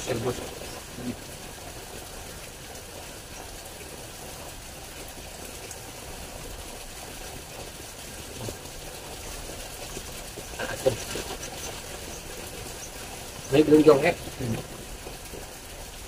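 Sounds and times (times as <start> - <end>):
stream water running: 0.0 - 16.0.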